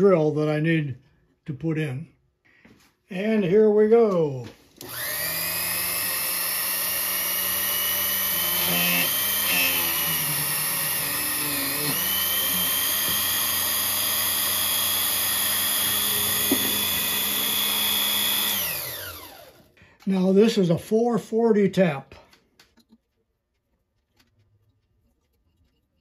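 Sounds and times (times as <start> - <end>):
drill press motor whining: 4.8 - 19.8
motor winding down: 4.8 - 19.8.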